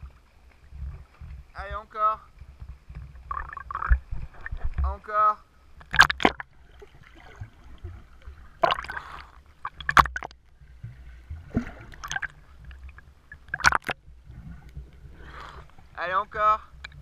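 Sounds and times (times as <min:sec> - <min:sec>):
pool water splashing: 0:00.0 - 0:17.0
steady low rumble: 0:10.4 - 0:17.0.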